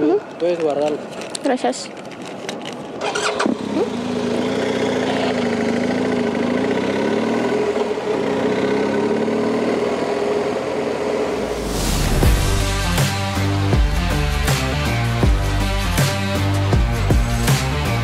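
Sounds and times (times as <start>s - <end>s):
motorcycle engine running: 3.0s - 11.4s.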